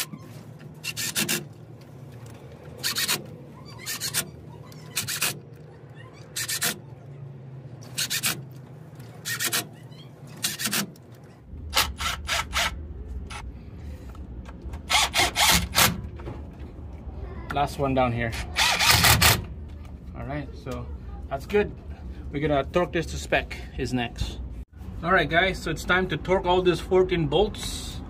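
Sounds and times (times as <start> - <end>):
impact wrench zipping: 0.0 - 1.6, 2.8 - 5.5, 6.2 - 6.8, 7.8 - 11.0, 11.7 - 13.4, 14.8 - 16.1, 18.3 - 19.6.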